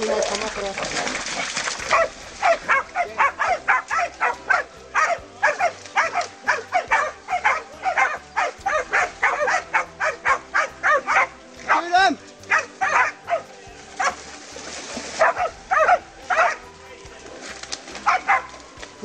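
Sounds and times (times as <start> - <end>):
dogs barking in sharp yelps: 1.8 - 14.2, 15.1 - 16.8, 18.0 - 18.7.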